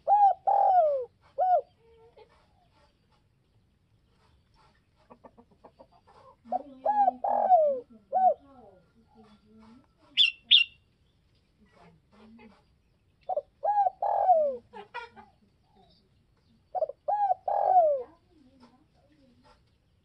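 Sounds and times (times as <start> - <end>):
dove cooing: 0.0 - 2.4, 6.1 - 10.7, 13.3 - 15.9, 16.7 - 19.5.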